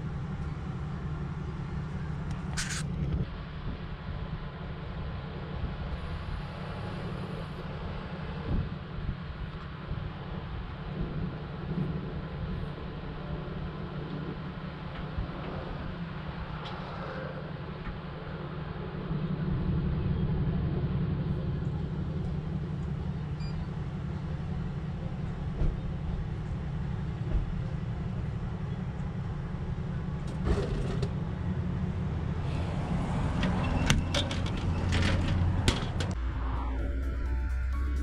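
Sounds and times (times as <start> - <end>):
dispenser flap clicks and clatter: 33.4 - 36.2.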